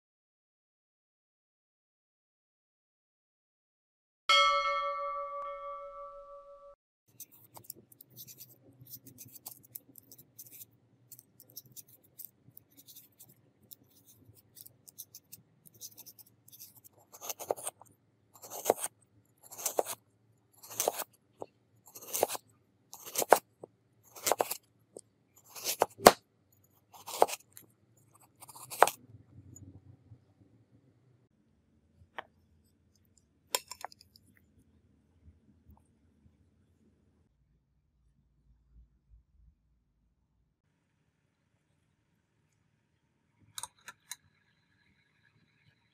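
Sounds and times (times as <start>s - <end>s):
peeler scraping potato: 7.1s - 20.0s, 20.6s - 21.2s, 21.8s - 24.6s, 25.4s - 26.2s, 26.8s - 29.0s
knife slicing on wooden board: 14.6s - 17.8s, 18.4s - 20.0s, 20.6s - 21.1s, 21.9s - 22.4s, 23.0s - 24.6s, 25.4s - 26.2s, 27.0s - 27.6s, 28.2s - 29.0s.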